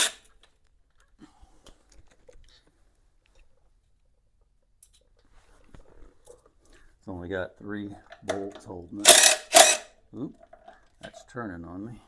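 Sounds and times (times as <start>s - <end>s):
small metal parts clicking: 9.0s - 9.9s.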